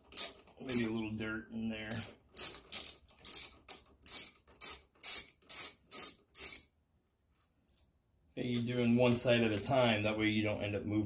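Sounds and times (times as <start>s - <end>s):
socket ratchet clicking: 1.9s - 6.7s.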